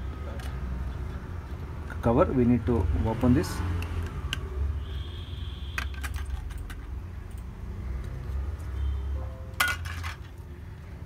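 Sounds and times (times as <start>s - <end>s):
metal clicks and rattles: 5.8s - 7.5s.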